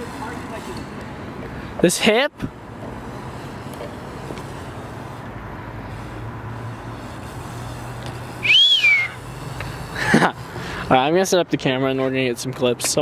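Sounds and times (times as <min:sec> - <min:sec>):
steady low hum: 0:00.0 - 0:11.0
outdoor background noise: 0:00.0 - 0:13.0
whistled note: 0:08.4 - 0:09.2.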